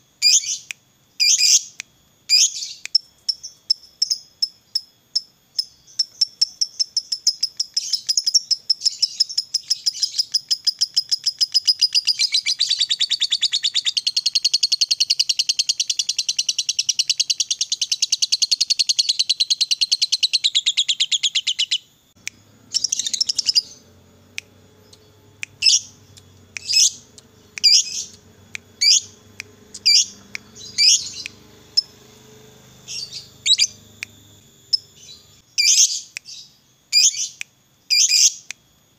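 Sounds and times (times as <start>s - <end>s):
sharp bird chirps: 0.2s - 38.5s
bird chattering trill: 5.6s - 36.4s.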